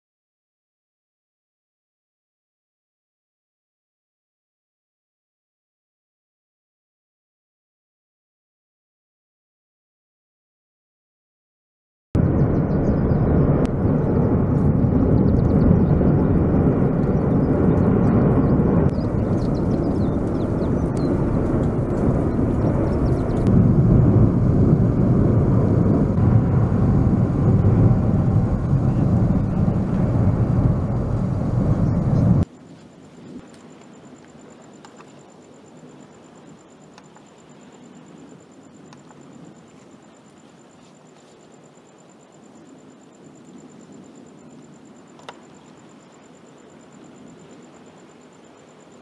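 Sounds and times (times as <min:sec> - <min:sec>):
volcano rumbling: 0:12.2 - 0:49.0
insect chirping: 0:15.0 - 0:23.8, 0:24.6 - 0:49.0.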